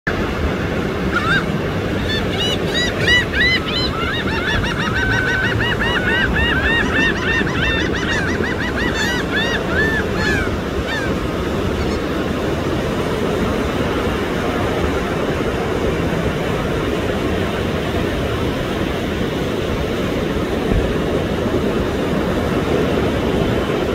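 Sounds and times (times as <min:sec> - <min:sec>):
gulls laughing calls: 0:00.1 - 0:23.9
surf washing: 0:00.1 - 0:23.9.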